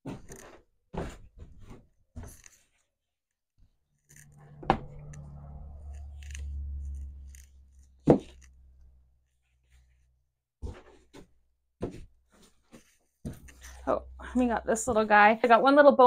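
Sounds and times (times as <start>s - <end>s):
low steady hum: 4.2s - 9.9s, 13.3s - 16.0s.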